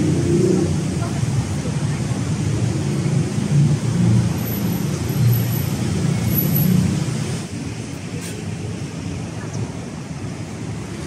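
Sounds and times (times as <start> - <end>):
road traffic passing: 0.0 - 11.0.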